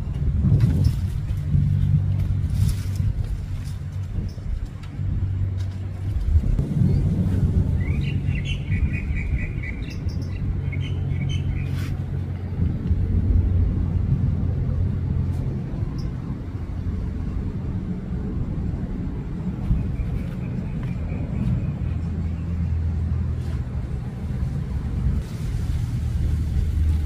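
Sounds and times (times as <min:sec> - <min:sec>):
jetliner low rumble: 0:00.0 - 0:27.0
small bird chirping: 0:07.8 - 0:11.8.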